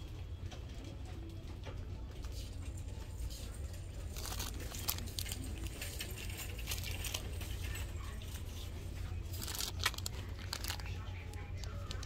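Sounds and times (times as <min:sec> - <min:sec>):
plastic wrappers crinkling: 0:03.0 - 0:12.0.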